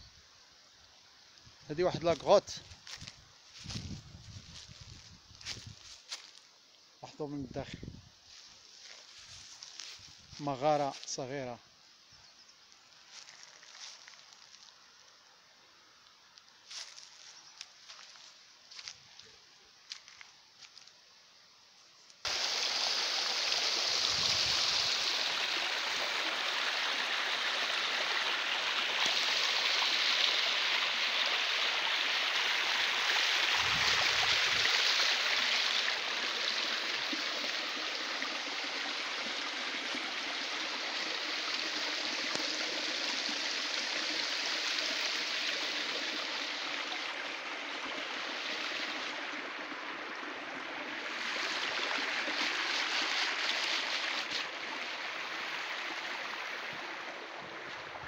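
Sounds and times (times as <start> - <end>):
stream water splashing into pool: 22.2 - 58.0.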